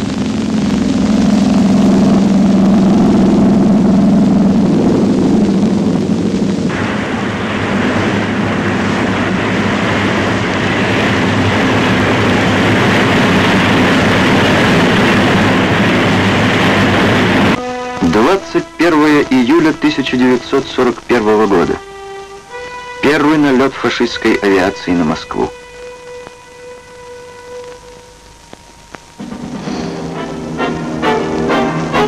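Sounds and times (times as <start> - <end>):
loud even rushing noise: 0.0 - 21.8
aircraft engines droning: 0.0 - 32.0.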